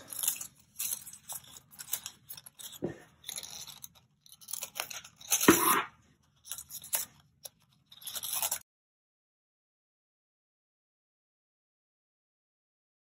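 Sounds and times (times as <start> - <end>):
scissors snipping paper: 0.0 - 5.9.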